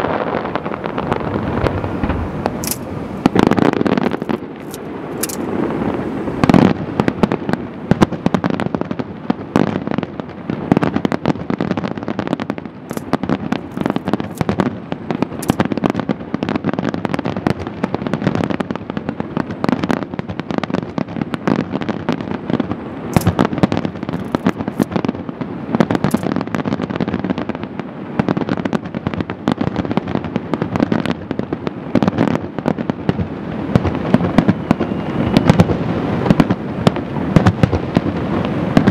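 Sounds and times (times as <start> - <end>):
continuous rumble: 0.6 - 8.2, 12.9 - 15.8, 22.9 - 25.1, 25.8 - 26.4
firework shells bursting: 1.1 - 5.8, 12.9 - 14.7, 15.3 - 15.8, 23.1 - 25.0, 26.0 - 26.4.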